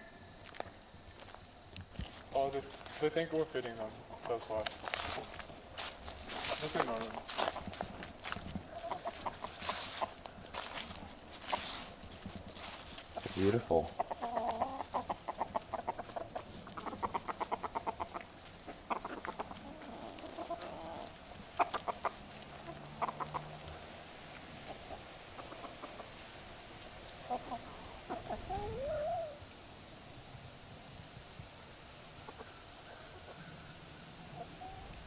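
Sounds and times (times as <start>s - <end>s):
hens and rooster clucking: 0.0s - 29.9s, 31.6s - 35.0s.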